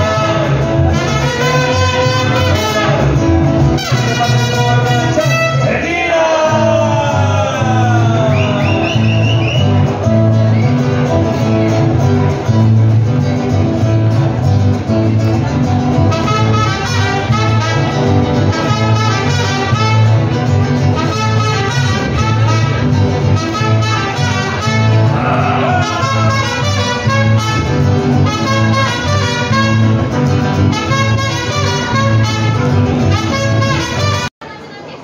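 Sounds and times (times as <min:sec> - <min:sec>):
strummed guitar chords: 0:00.0 - 0:34.3
mariachi band playing: 0:00.0 - 0:34.6
pulsing bass line: 0:06.5 - 0:33.8.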